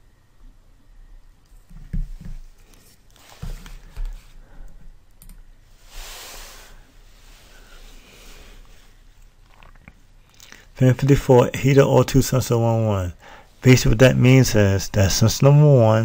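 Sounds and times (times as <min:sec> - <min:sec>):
desk knocks and mouse clicks: 0:01.7 - 0:02.4
short hiss: 0:05.8 - 0:08.9.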